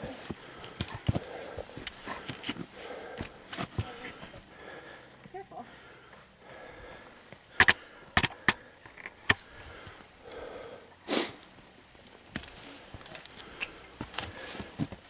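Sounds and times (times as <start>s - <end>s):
footsteps on roots and rocks: 0.0s - 4.5s, 11.4s - 15.0s
person sniffing: 11.1s - 11.4s.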